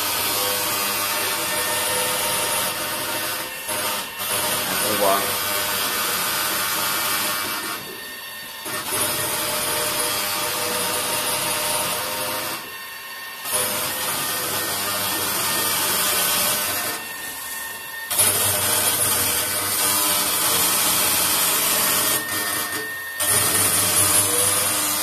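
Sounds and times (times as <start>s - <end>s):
milking robot running: 0.2s - 7.4s, 18.1s - 25.0s.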